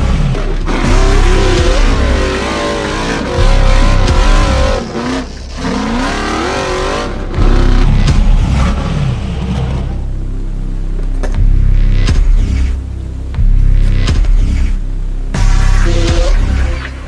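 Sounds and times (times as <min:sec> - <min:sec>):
buggy engine revving: 0:00.0 - 0:10.1.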